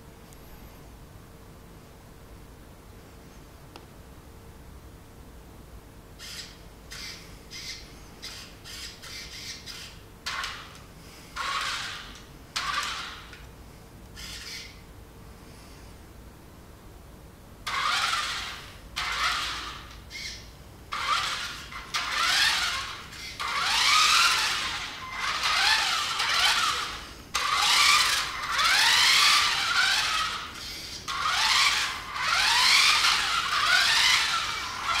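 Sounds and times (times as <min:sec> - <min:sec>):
toy car motor whining: 0:06.2 - 0:13.4, 0:14.2 - 0:14.8, 0:17.6 - 0:35.0.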